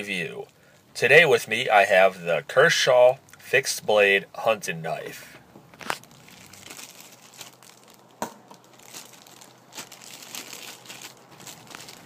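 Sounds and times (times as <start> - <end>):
plastic wrapping crinkling: 5.7 - 12.0.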